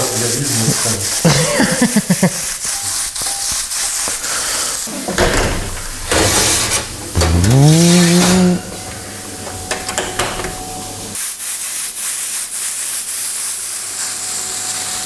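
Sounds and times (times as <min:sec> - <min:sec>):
hum rising in pitch: 0:07.1 - 0:09.4.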